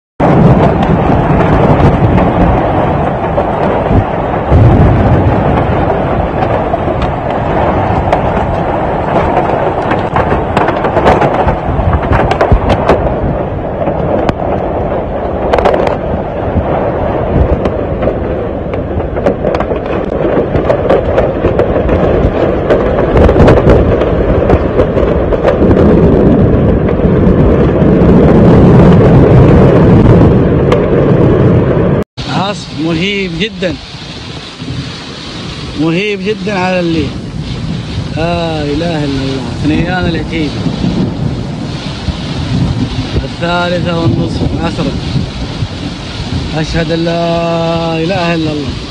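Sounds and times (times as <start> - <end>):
crackling pops: 0.2 - 16.8, 17.4 - 27.8
heavy driving rain: 0.2 - 48.9
low rumble: 0.2 - 48.9
wind buffeting microphone: 0.2 - 48.9.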